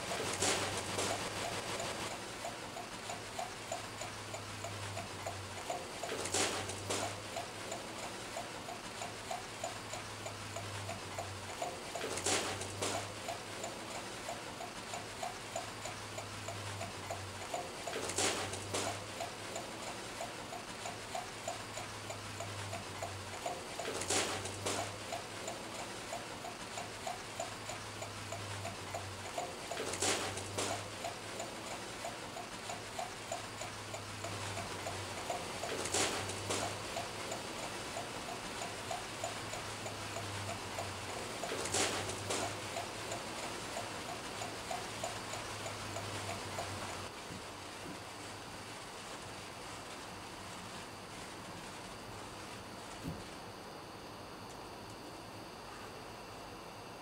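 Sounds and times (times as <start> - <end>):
hiss: 0.0 - 2.2, 5.8 - 9.2, 17.6 - 21.4, 23.4 - 27.5, 29.3 - 39.3.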